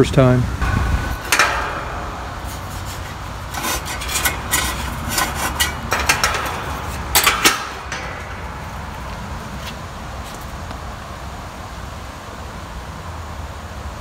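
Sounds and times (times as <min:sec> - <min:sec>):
low steady rumble: 0:00.0 - 0:12.7
sharp clicks on sheet metal: 0:00.6 - 0:09.8
short metal scrapes: 0:00.6 - 0:09.8.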